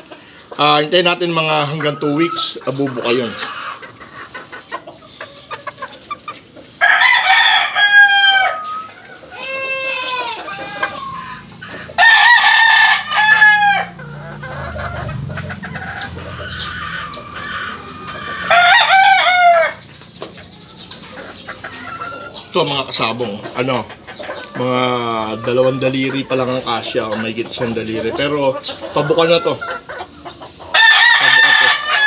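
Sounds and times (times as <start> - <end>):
roosters crowing: 0.0 - 32.0.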